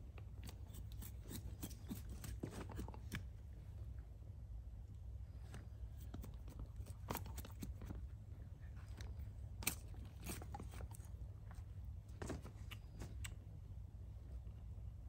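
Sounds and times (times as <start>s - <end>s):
low steady rumble: 0.0s - 15.0s
dog crunching and chewing: 6.0s - 8.0s.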